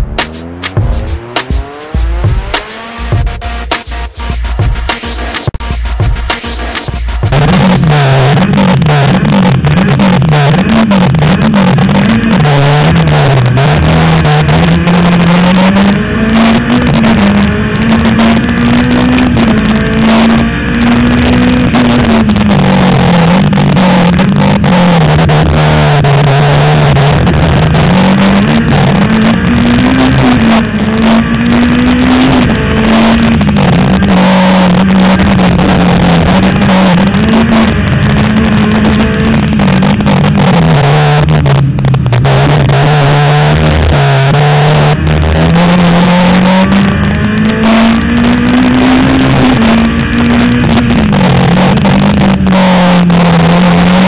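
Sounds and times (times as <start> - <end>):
dense rushing noise: 0.0 - 8.9
racing car engine: 0.0 - 54.0.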